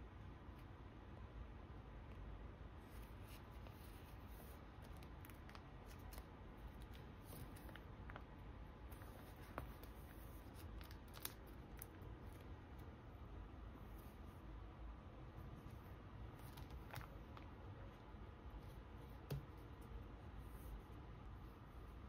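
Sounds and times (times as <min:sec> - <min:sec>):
plastic crinkling: 0:08.9 - 0:12.9.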